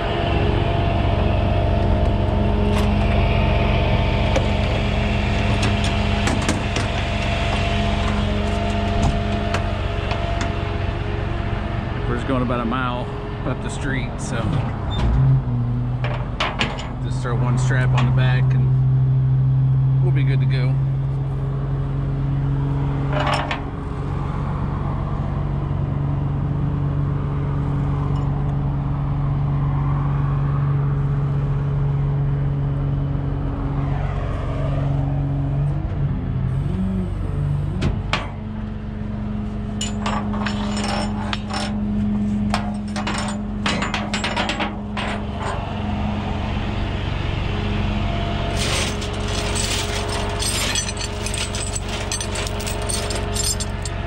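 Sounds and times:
truck engine humming: 0:00.0 - 0:24.8, 0:36.0 - 0:54.0
metal clinks and knocks: 0:16.0 - 0:17.0, 0:23.1 - 0:23.6, 0:39.8 - 0:41.8, 0:42.5 - 0:45.7, 0:48.6 - 0:54.0.

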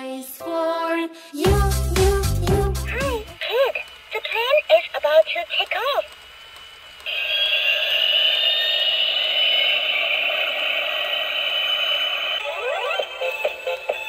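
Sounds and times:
toy jet sound tinny hiss and whine: 0:03.4 - 0:14.0
rising electronic chirps: 0:07.1 - 0:14.0
toy electronic tune: 0:11.1 - 0:14.0.

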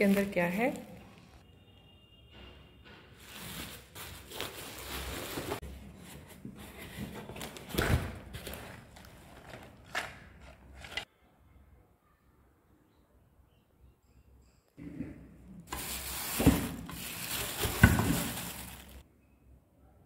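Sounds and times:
bubble wrap crinkling: 0:00.0 - 0:01.4, 0:03.2 - 0:05.6, 0:15.7 - 0:19.0.

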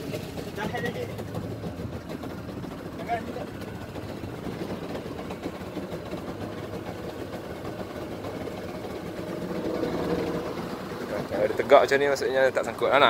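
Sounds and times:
boat engine running: 0:00.0 - 0:13.0
water noise: 0:00.0 - 0:13.0
wind: 0:00.0 - 0:13.0.

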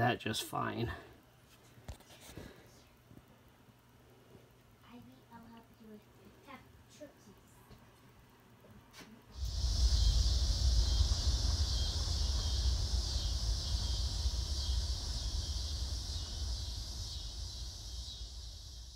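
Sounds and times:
high-pitched drone: 0:09.4 - 0:18.9
wind rumble on microphone: 0:09.4 - 0:18.9.

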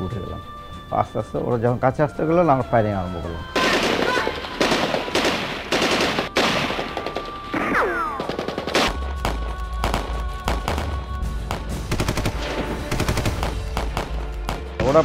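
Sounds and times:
machine-gun bursts: 0:03.6 - 0:07.4, 0:11.9 - 0:14.1
rapid rifle shots: 0:03.6 - 0:10.9, 0:11.5 - 0:15.0.

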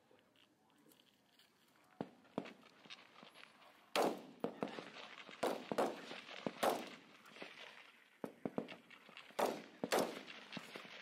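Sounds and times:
rifle shots with echo: 0:04.0 - 0:04.8, 0:05.4 - 0:07.0, 0:09.4 - 0:10.6.

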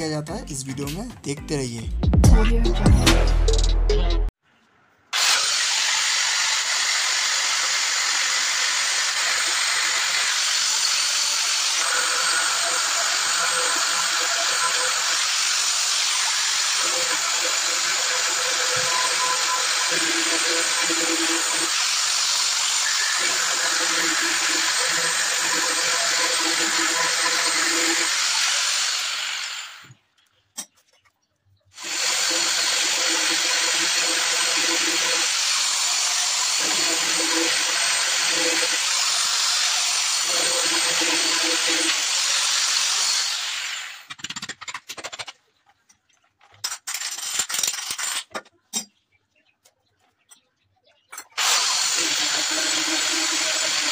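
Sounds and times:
angle grinder drilling stone: 0:05.2 - 0:29.9, 0:31.8 - 0:44.1, 0:51.4 - 0:53.9.

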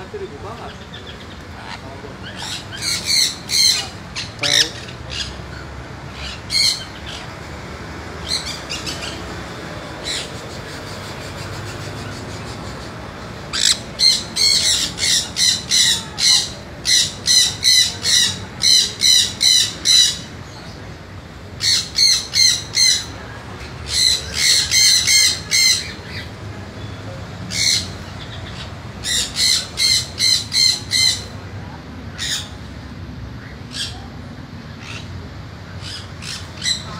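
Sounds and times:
parrot squawking: 0:00.6 - 0:05.4, 0:06.1 - 0:07.3, 0:13.5 - 0:20.3, 0:21.6 - 0:23.2, 0:23.9 - 0:26.3, 0:27.5 - 0:31.4.

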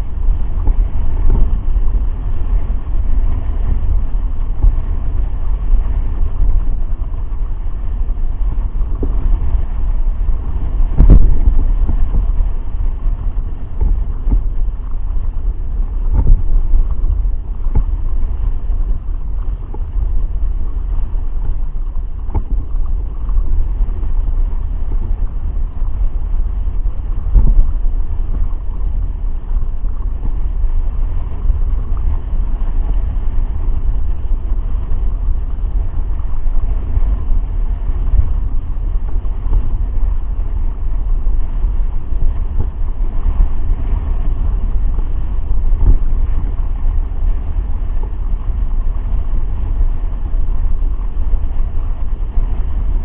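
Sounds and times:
wind and water rushing: 0:00.0 - 0:53.0.

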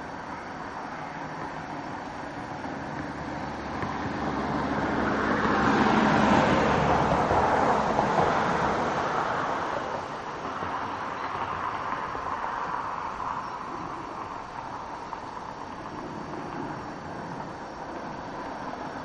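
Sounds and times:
vehicle passing by: 0:01.0 - 0:19.0.

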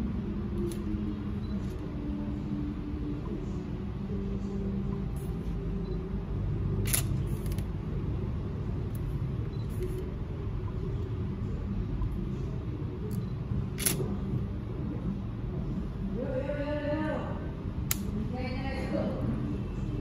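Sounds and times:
steady low rumble: 0:00.0 - 0:20.0
camera shutter firing: 0:06.8 - 0:07.6, 0:13.8 - 0:14.0.

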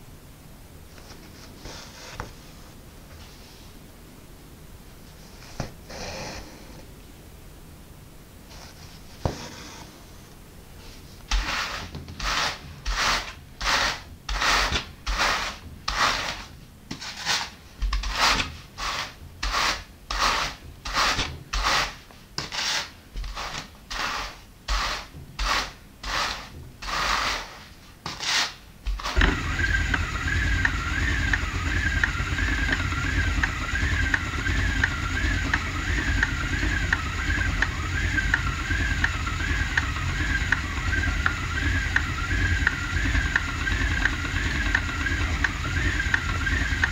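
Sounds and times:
hand carders scraping wool: 0:11.3 - 0:30.0
spinning wheel whirring: 0:28.9 - 0:46.9.

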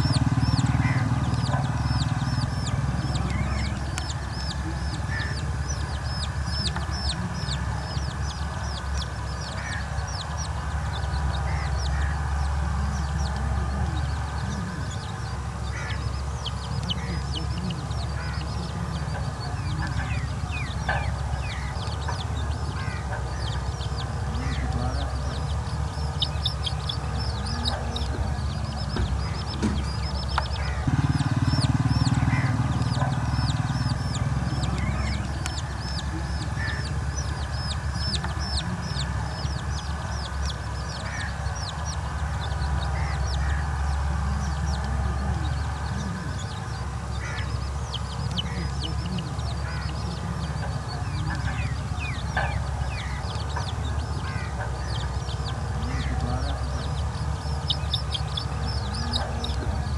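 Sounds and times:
chicks peeping: 0:00.0 - 0:59.9
hen clucking: 0:00.0 - 0:59.9.

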